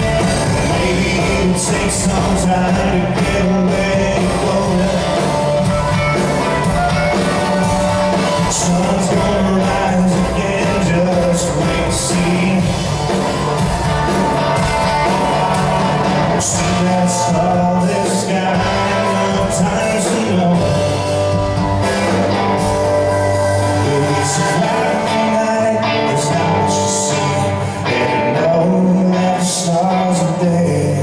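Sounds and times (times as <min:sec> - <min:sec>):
person singing: 0:00.0 - 0:22.4, 0:23.0 - 0:31.0
live band playing: 0:00.0 - 0:31.0.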